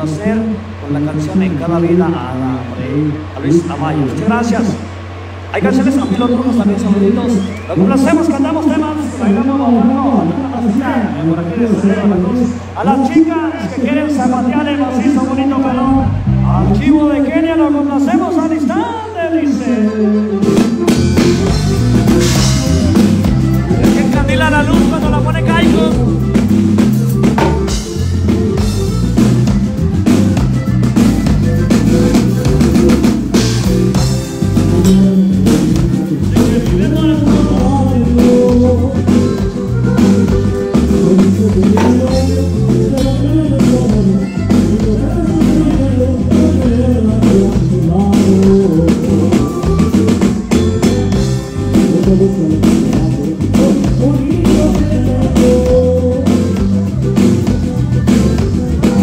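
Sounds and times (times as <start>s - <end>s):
electric bass: 0.0s - 59.0s
live band playing dance music: 0.0s - 59.0s
drums beat: 20.3s - 59.0s.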